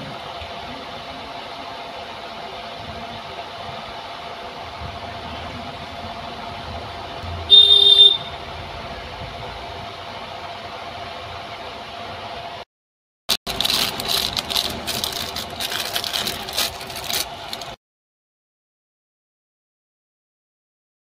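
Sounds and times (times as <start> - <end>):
steady low hum: 0.0 - 12.6.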